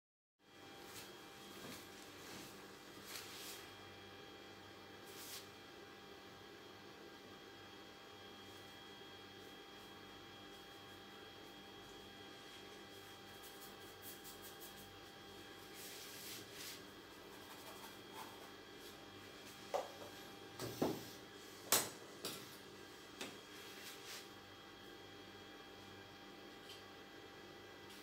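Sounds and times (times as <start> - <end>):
faint electrical hum: 0.4 - 28.0
paintbrush strokes on canvas: 0.8 - 3.7, 5.0 - 5.6, 12.4 - 19.1, 23.5 - 24.4.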